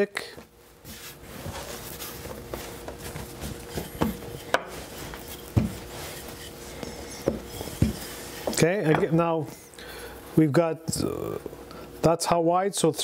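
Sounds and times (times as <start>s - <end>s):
rolling pin rolling dough: 0.8s - 9.5s
thumps on wooden board: 3.8s - 4.7s, 5.5s - 5.8s, 7.2s - 9.1s.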